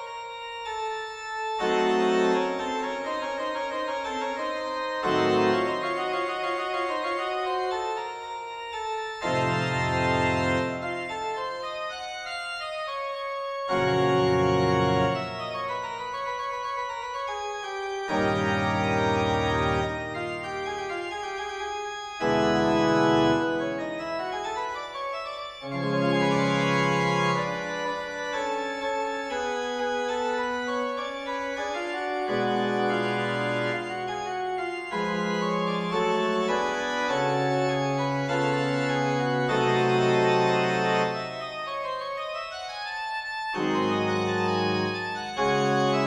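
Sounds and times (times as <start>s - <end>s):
organ music: 0.0s - 46.0s.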